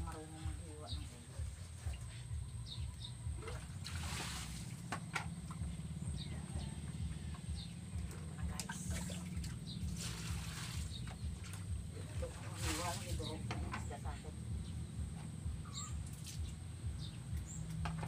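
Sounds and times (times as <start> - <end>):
steady low hum: 0.0 - 18.0
water splashing in a basin: 3.0 - 14.0, 15.6 - 16.8.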